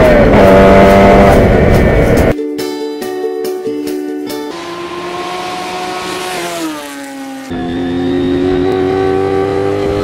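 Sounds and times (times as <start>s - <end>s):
motorcycle approaching: 0.0s - 2.3s, 4.5s - 10.0s
motorcycle engine passing by: 4.6s - 10.0s.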